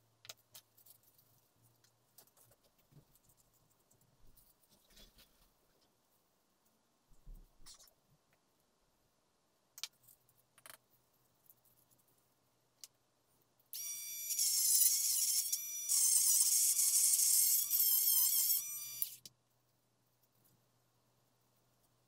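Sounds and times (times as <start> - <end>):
rotary tool whining: 13.8 - 19.2.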